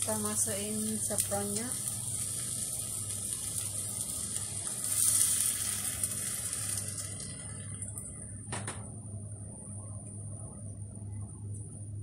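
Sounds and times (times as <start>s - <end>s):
rice sizzling in a pot: 0.0s - 8.3s.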